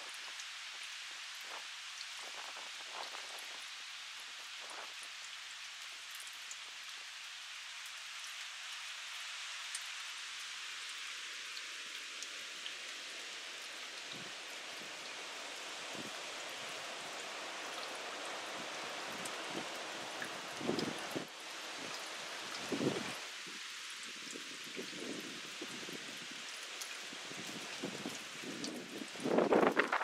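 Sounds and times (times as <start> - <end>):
steady rain hissing: 0.0 - 30.0
low gusts of wind: 13.0 - 30.0.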